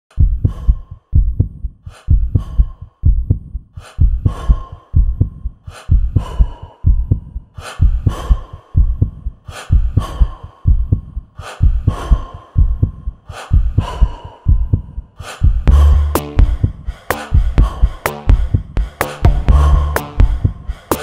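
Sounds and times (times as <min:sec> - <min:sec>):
heartbeat double thump: 0:00.2 - 0:04.4, 0:14.5 - 0:21.0
breathing: 0:00.2 - 0:21.0.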